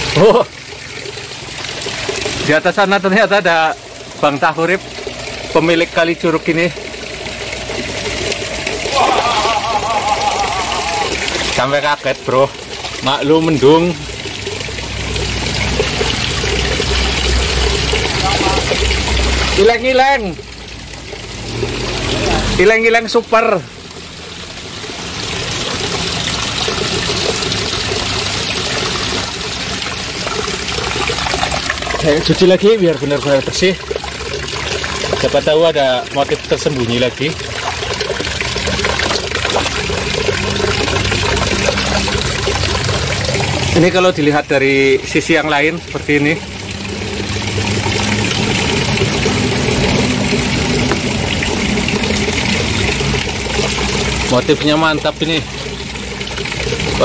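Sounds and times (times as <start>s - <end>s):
stream water over rocks: 0.0s - 57.0s
creek water rushing over rocks: 36.6s - 57.0s.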